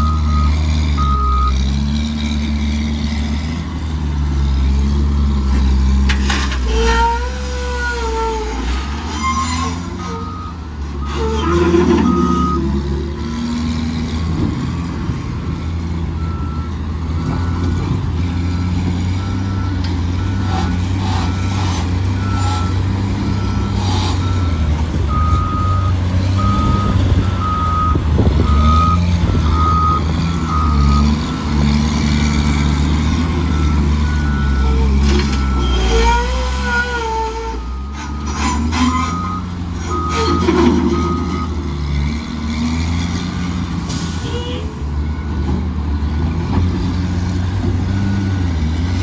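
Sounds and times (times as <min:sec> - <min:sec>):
diesel engine under load: 0:00.0 - 0:49.0.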